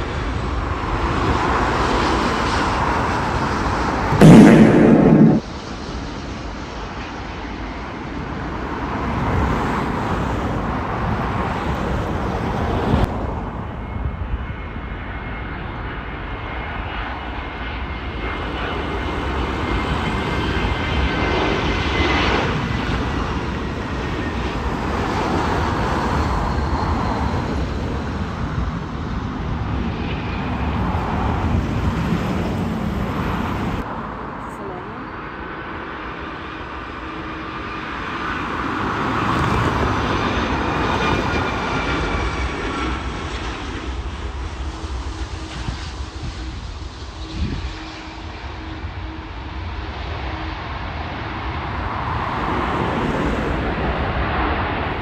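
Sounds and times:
jet engines rumbling: 0:00.0 - 0:55.0
high whine sliding down: 0:04.1 - 0:05.5.

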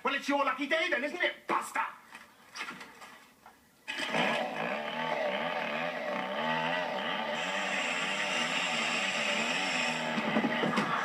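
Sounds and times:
chainsaw engine starting and running: 0:03.9 - 0:11.0.

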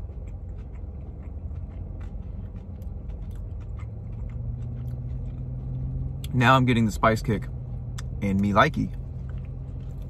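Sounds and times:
car interior rumble: 0:00.0 - 0:10.0
crunchy chewing: 0:00.0 - 0:10.0
low hum: 0:00.0 - 0:10.0.

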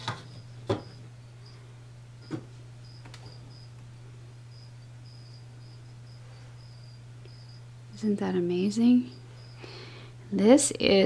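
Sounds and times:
steady low hum: 0:00.0 - 0:11.0
cricket chirping: 0:00.3 - 0:01.6, 0:02.8 - 0:03.8, 0:04.5 - 0:07.8, 0:08.6 - 0:09.8.

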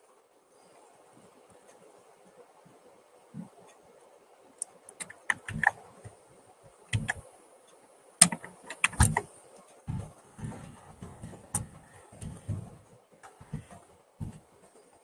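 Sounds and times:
computer keyboard keys clicking: 0:05.0 - 0:05.8, 0:06.9 - 0:07.2, 0:08.2 - 0:09.3, 0:09.9 - 0:14.4.

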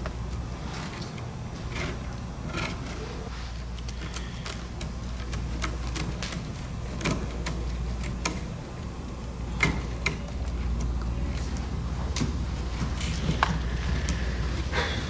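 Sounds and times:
scissors snipping cane: 0:03.7 - 0:08.6.

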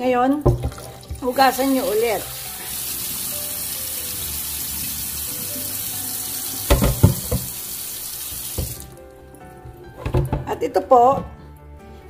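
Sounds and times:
water draining from pot: 0:00.1 - 0:11.1
tap running into steel sink: 0:00.4 - 0:01.9, 0:06.6 - 0:09.0, 0:09.6 - 0:11.4
knocks: 0:06.7 - 0:07.5, 0:09.7 - 0:10.5.

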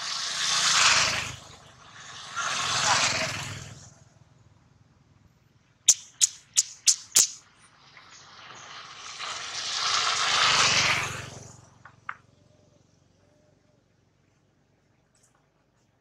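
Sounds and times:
vehicle rushing past: 0:00.0 - 0:04.2, 0:06.1 - 0:12.9
sharp clicks: 0:05.9 - 0:07.4.

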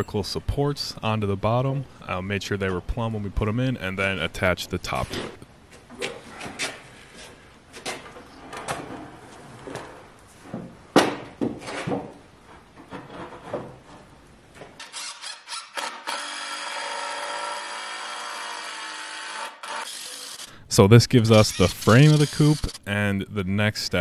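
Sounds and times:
cordless drill driving screw: 0:14.8 - 0:20.5, 0:21.4 - 0:22.8.

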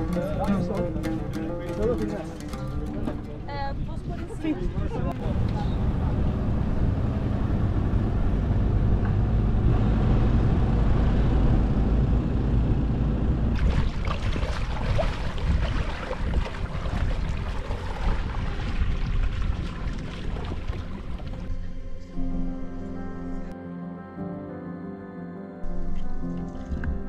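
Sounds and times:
low outdoor rumble: 0:03.0 - 0:23.6
feet wading through water: 0:13.6 - 0:21.5, 0:25.8 - 0:27.0.

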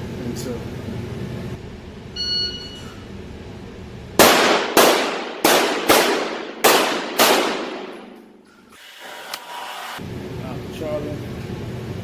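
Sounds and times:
shot timer beep: 0:02.2 - 0:02.8
pistol shots indoors: 0:04.2 - 0:08.4.

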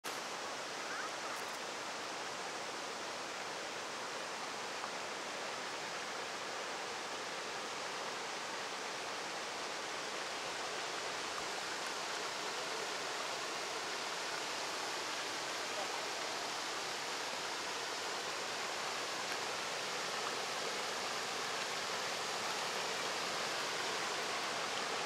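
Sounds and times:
river water pouring over waterfall: 0:00.0 - 0:25.0.

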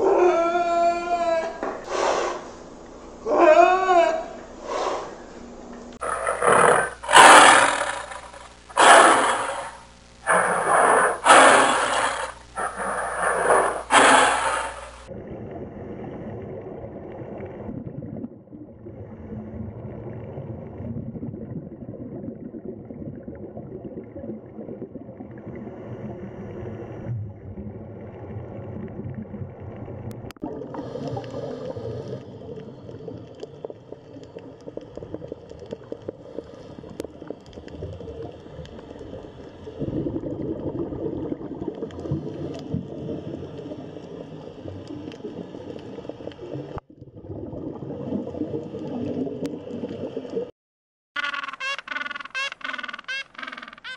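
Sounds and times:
hiss: 0:01.9 - 0:02.5, 0:06.1 - 0:15.1
tiger roaring: 0:06.0 - 0:14.8
underwater gurgling: 0:06.0 - 0:50.5.

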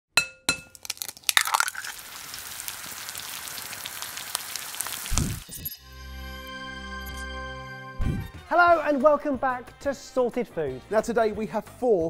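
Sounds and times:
egg cracking: 0:00.5 - 0:05.6
egg sizzling in a frying pan: 0:00.7 - 0:05.6.

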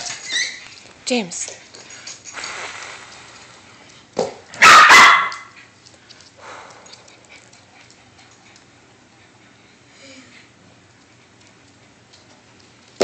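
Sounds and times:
small dog barking: 0:04.6 - 0:05.6.

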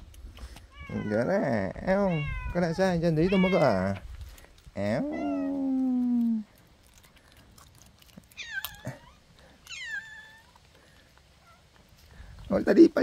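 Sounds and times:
cat meowing: 0:00.7 - 0:01.3, 0:01.9 - 0:04.0, 0:05.0 - 0:06.4, 0:08.3 - 0:10.6.

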